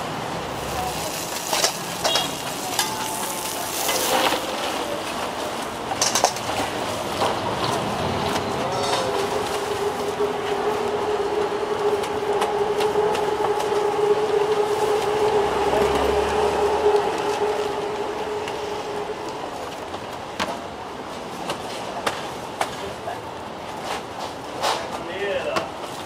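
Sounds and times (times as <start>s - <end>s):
motor scooter engine passing: 0.3s - 20.3s.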